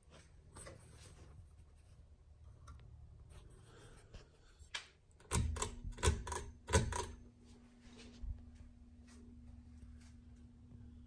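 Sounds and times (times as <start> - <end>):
ceiling fan humming: 0.0 - 11.0
pull chain clicks and knocks: 5.2 - 7.2.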